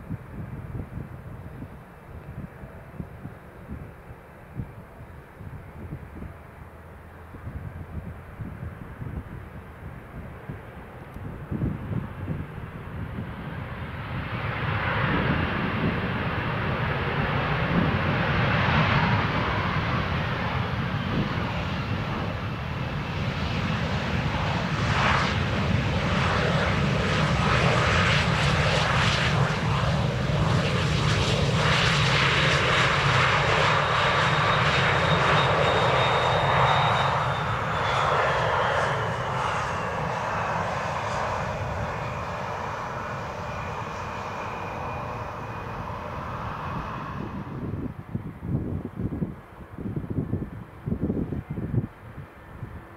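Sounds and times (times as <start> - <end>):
jet engines rumbling and whining: 0.0 - 52.9.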